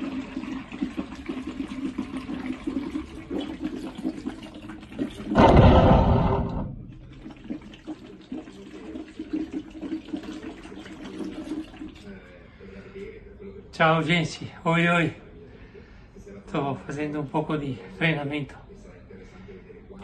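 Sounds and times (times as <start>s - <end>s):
loud rush of noise: 5.4s - 7.0s.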